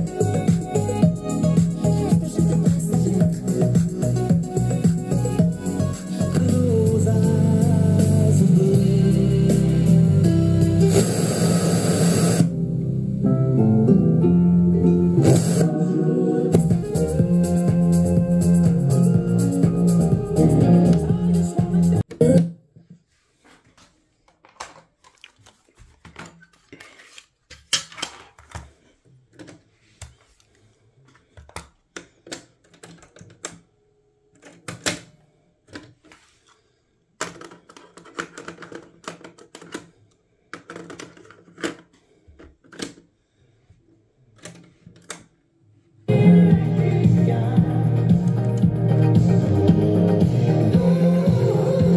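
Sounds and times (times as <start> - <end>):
music from speakers: 0.0 - 12.6, 15.0 - 22.5, 46.1 - 51.9.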